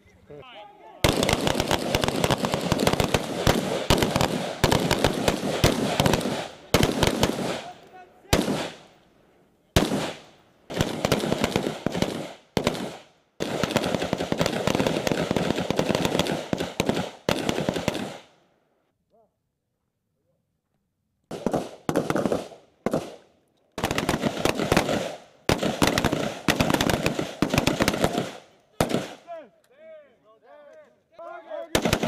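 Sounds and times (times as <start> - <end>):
rifle gunfire: 1.0 - 9.0, 9.8 - 18.3, 21.3 - 23.2, 23.8 - 29.3, 31.7 - 32.0.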